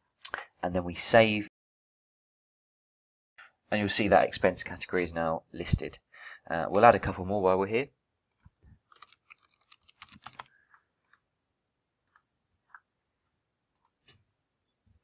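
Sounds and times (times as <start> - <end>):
computer keyboard typing: 8.3 - 11.2
computer mouse clicks: 8.3 - 11.2, 12.0 - 12.8, 13.7 - 14.2.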